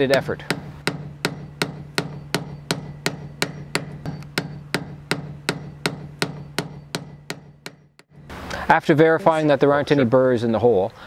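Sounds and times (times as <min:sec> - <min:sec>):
hammer tapping screwdriver: 0:00.0 - 0:08.1.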